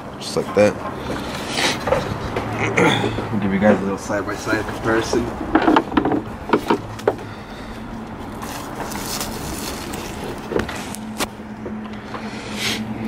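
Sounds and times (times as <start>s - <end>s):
steady background hum and hiss: 0.0s - 13.0s.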